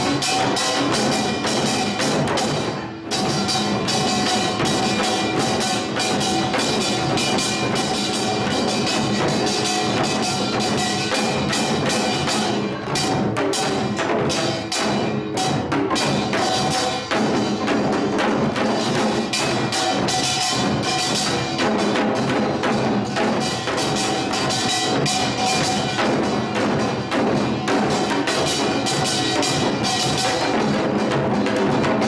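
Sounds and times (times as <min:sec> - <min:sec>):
metallic ringing of gongs: 0:00.0 - 0:17.5
drums beaten in quick strokes: 0:00.0 - 0:32.0.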